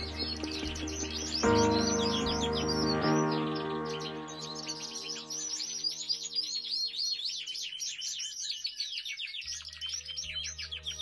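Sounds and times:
soft background music: 0.0 - 7.3, 9.4 - 11.0
songbird trilling: 0.0 - 11.0.

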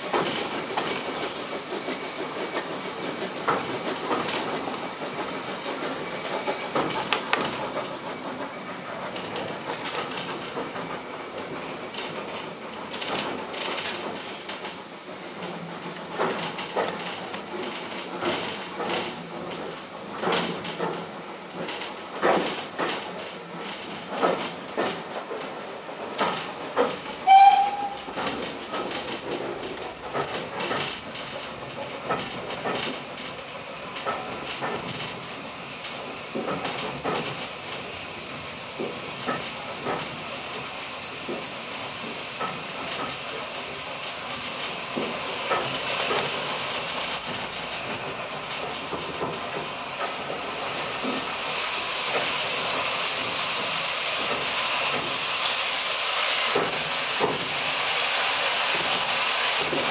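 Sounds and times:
steam hissing: 0.0 - 59.9
train wheels clicking over rail joints: 0.0 - 59.9
high wheel squeal: 27.2 - 28.2.

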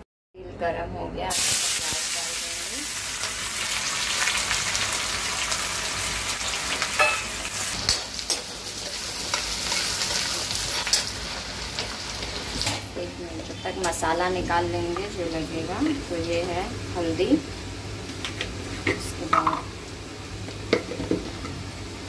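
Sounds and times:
onions sizzling in oil: 1.3 - 22.0
metal spoon clinking on pan: 7.0 - 8.5.

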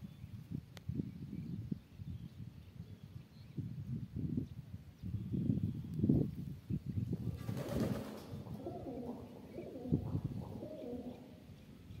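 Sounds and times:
pigeons cooing: 7.3 - 11.6.

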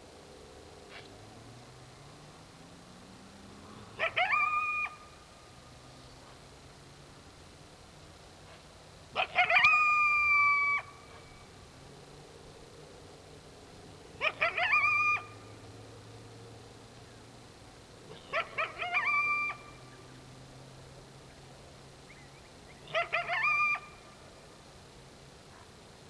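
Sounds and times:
coyote yipping and howling: 3.9 - 5.2, 9.1 - 11.4, 14.2 - 15.6, 18.1 - 20.0, 22.1 - 24.2.

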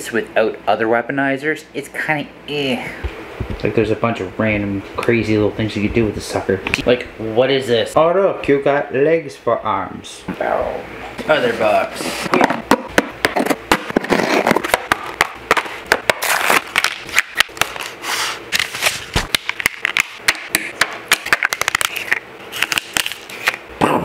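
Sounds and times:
cardboard crackling and scraping: 13.4 - 19.4.

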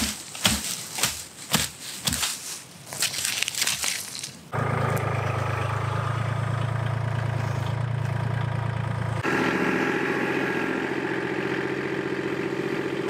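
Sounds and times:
tractor engine running: 4.5 - 13.0
loader scooping wood chips: 4.6 - 13.0.

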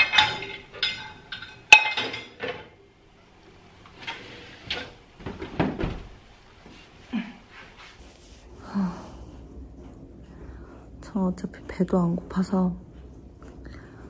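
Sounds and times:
dishes and utensils clinking: 0.0 - 2.8.

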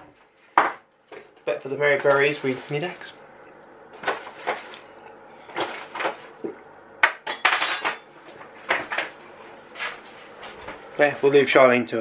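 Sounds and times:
dishes and cutlery clattering: 7.2 - 8.1.

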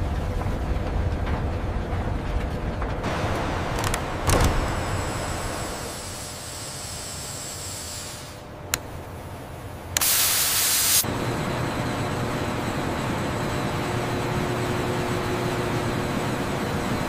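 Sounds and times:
steady industrial hiss: 3.0 - 13.4
pressure release hissing: 4.6 - 9.0, 9.9 - 11.1.

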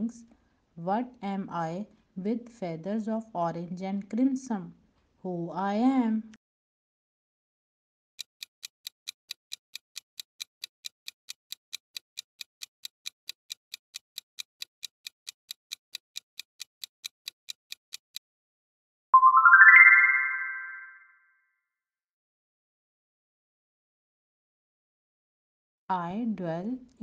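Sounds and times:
timer ticking: 8.2 - 18.2
short rising chime: 19.2 - 21.2.

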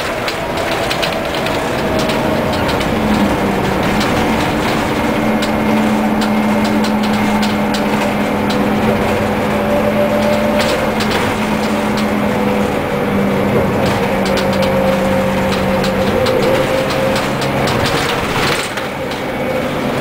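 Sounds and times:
bus diesel engine droning: 0.0 - 20.0
road noise: 0.0 - 20.0.

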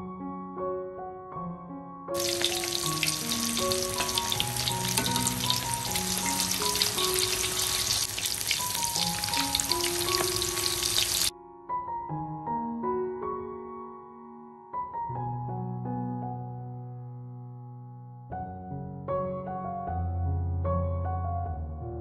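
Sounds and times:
chicken frying in hot oil: 2.2 - 11.3.

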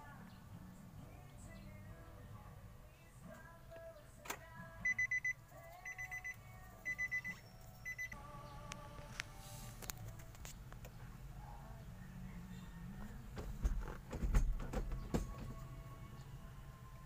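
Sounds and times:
car warning chime beeping: 4.8 - 8.2.

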